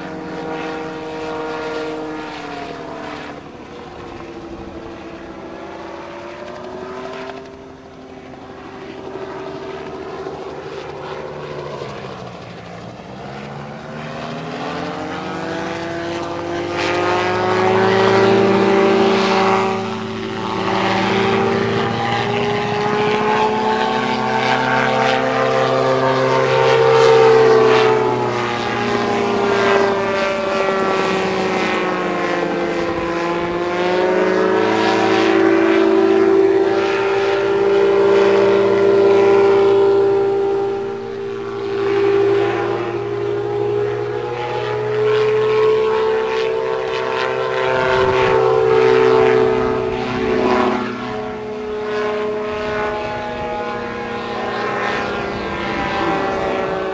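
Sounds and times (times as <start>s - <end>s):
aircraft engine and propeller overhead: 0.0s - 56.9s.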